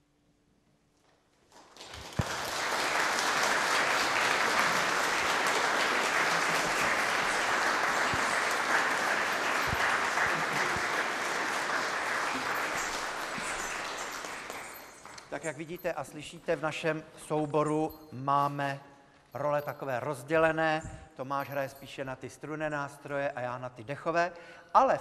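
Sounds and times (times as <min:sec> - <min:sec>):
audience applauding: 0:01.5 - 0:15.8.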